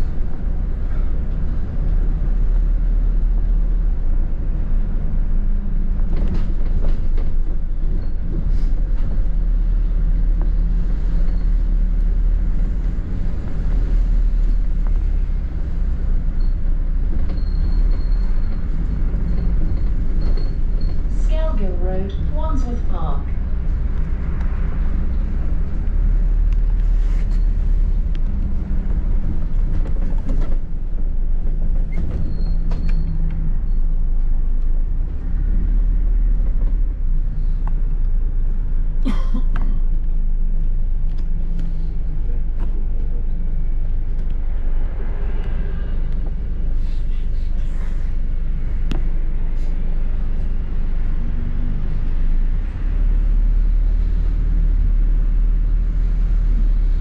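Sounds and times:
bus engine and road rumble: 0.0 - 57.0
bodywork knocks and rattles: 27.4 - 33.5.

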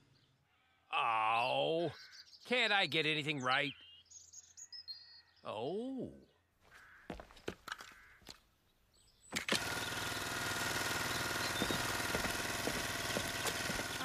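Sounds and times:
hedge trimmer motor buzzing: 9.4 - 14.0.

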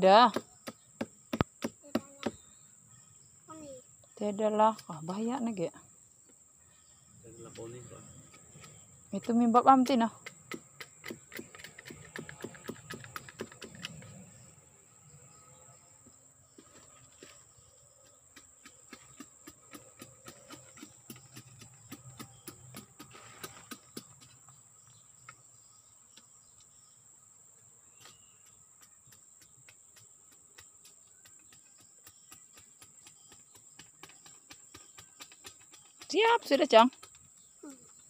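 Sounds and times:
knife chopping wood: 0.2 - 2.4, 8.3 - 13.9, 18.3 - 24.4, 28.0 - 36.2
high insect drone: 0.4 - 22.9.

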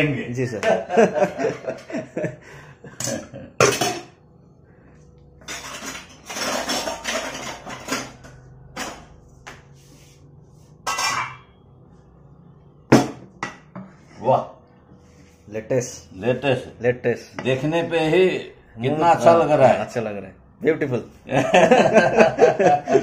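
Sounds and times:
metal pots and lids clinking: 3.0 - 4.2, 5.4 - 9.1, 10.8 - 11.6.

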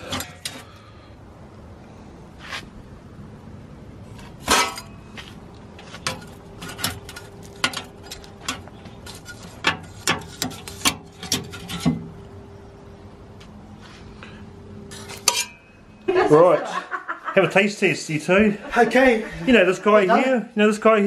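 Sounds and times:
metal spatula scraping grill rack: 0.0 - 0.9, 4.2 - 5.0, 5.8 - 12.1, 14.9 - 15.8
loud ringing clang: 15.3 - 16.0.

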